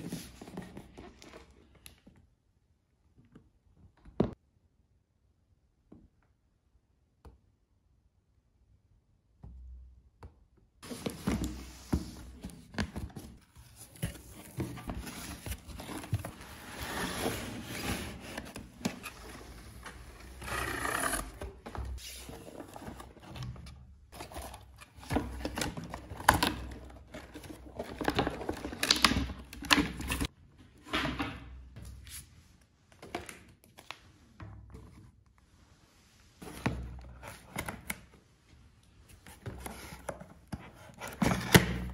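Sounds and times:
cardboard and plastic rustling: 0:10.8 - 0:30.3.

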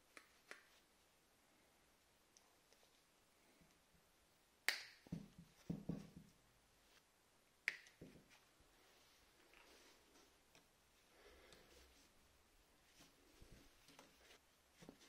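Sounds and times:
soft knocks of handling: 0:05.1 - 0:06.4.

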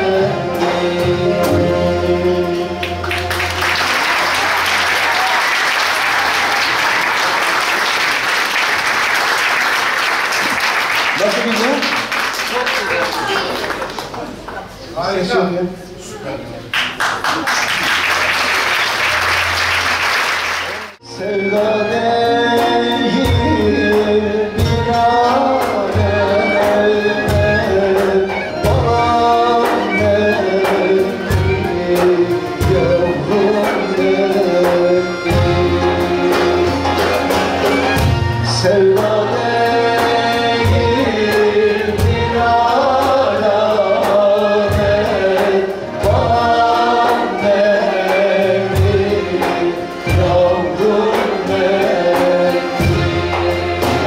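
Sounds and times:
man singing: 0:00.0 - 0:03.0, 0:21.0 - 0:37.3, 0:38.4 - 0:54.0
choir singing: 0:00.0 - 0:08.0, 0:21.0 - 0:37.3, 0:38.5 - 0:54.0
applause: 0:03.0 - 0:14.7, 0:16.7 - 0:21.0.

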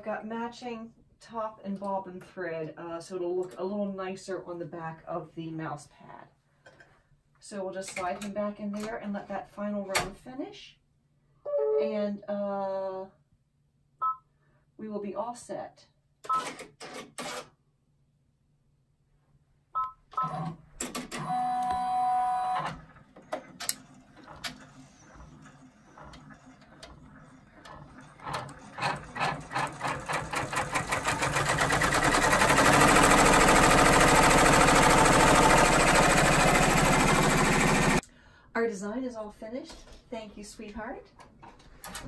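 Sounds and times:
embroidery machine stitching: 0:22.4 - 0:38.0.

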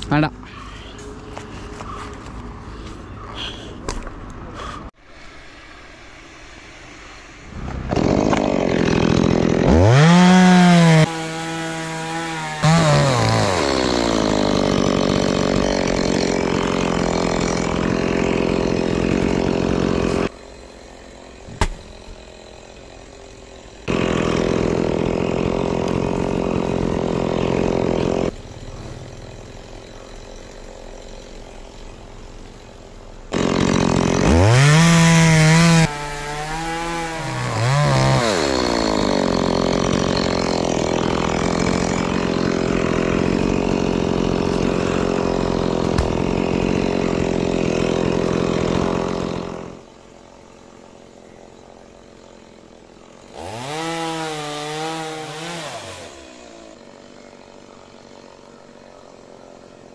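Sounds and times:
chainsaw cutting wood: 0:07.5 - 0:59.9.

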